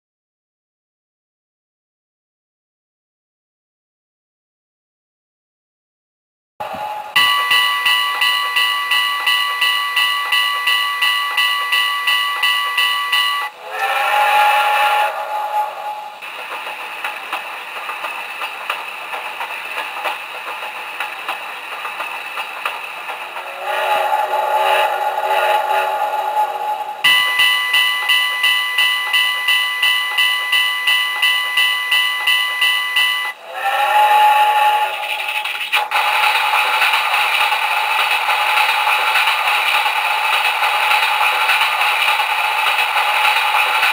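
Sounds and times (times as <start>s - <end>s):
bell ringing from small speaker: 7.1s - 13.6s, 27.0s - 33.4s.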